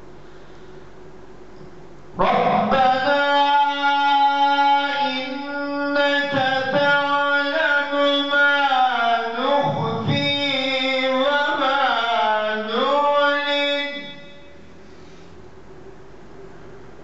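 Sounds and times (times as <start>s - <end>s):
man reciting melodically: 2.2s - 14.6s.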